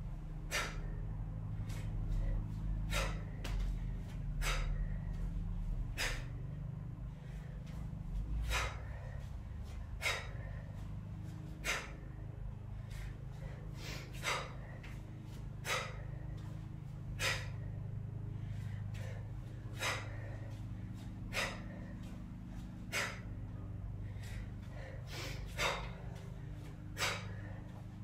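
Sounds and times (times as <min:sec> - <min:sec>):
steady low hum: 0:00.0 - 0:28.0
woman's sharp exhaled breaths: 0:00.2 - 0:28.0.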